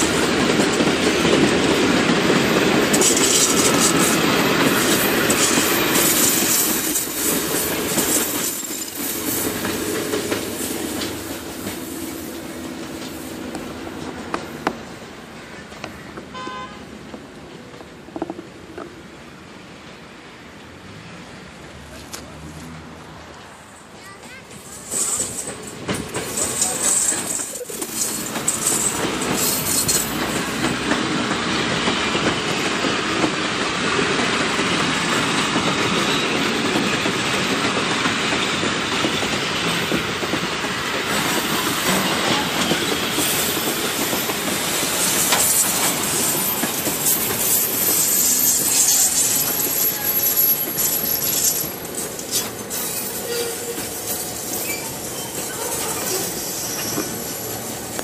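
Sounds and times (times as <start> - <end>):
train wheels rumbling on rails: 0.0 - 58.0
high wheel squeal: 41.9 - 57.8.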